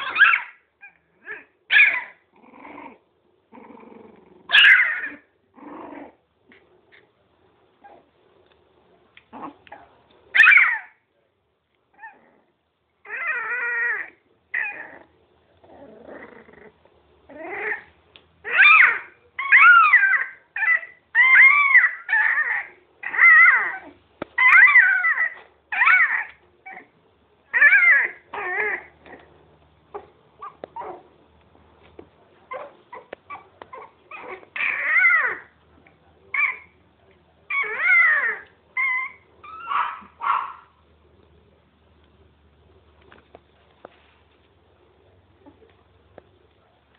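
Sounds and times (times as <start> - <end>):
puppies whining and yelping: 0.0 - 2.2, 4.5 - 5.3, 9.7 - 11.0, 13.0 - 15.0, 17.3 - 26.9, 27.5 - 29.3, 29.9 - 31.1, 32.5 - 35.5, 36.3 - 36.8, 37.5 - 40.6.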